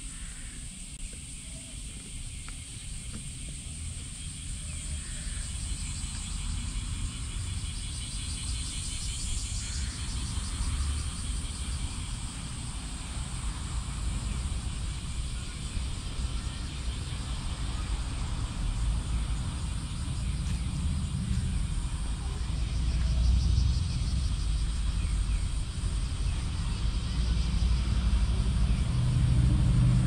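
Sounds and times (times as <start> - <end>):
cicadas buzzing: 0.0 - 30.0
low rumble: 18.2 - 30.0.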